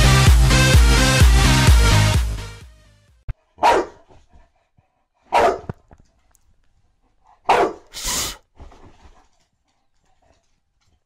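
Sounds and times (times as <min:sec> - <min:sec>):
dog barking: 0:03.4 - 0:04.3, 0:05.2 - 0:05.8, 0:07.4 - 0:08.0.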